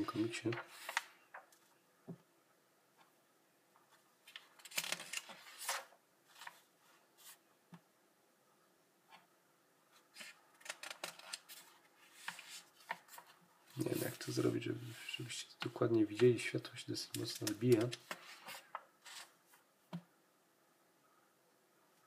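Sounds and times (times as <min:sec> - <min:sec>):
page turning rustle: 0:00.0 - 0:01.7, 0:04.2 - 0:07.4, 0:10.1 - 0:15.2, 0:17.2 - 0:19.6.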